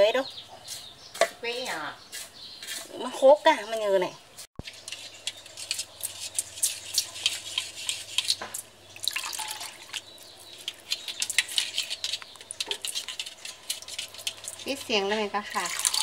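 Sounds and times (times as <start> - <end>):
water sloshing in a sieve: 5.5 - 16.0.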